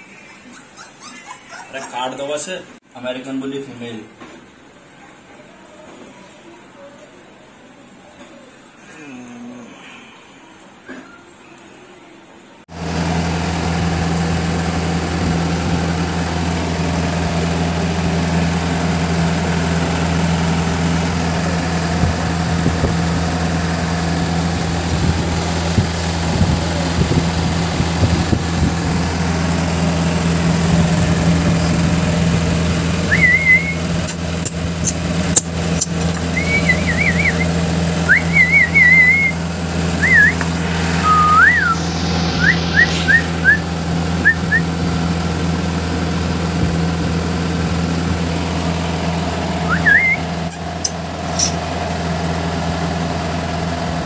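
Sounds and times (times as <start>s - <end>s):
motor humming: 12.8s - 53.5s
sharp clicks: 34.0s - 36.5s
high warbling squeaks: 40.0s - 44.4s, 50.0s - 51.6s.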